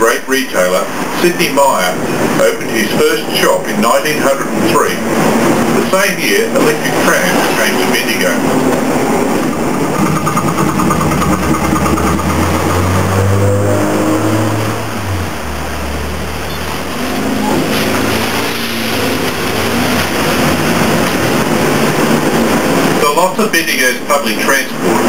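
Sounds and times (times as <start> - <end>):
tram motors whining: 4.4 - 23.4.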